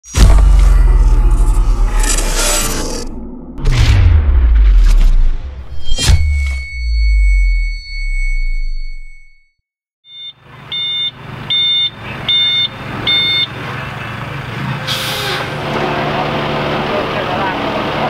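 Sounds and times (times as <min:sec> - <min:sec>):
deep boom with ringing tone: 0:00.1 - 0:09.6
reversing alarm beeps: 0:06.0 - 0:09.5, 0:10.1 - 0:13.6
truck engine running: 0:10.4 - 0:18.0.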